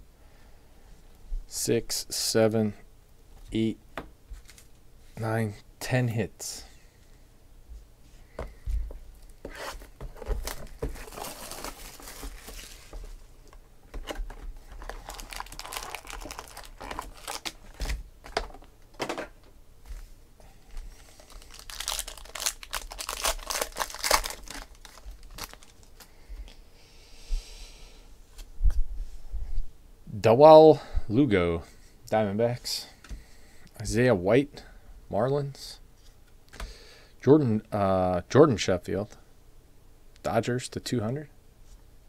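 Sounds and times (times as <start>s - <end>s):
wrappers torn and crinkled: 10.4s - 13.0s, 14.7s - 18.0s, 21.0s - 26.0s.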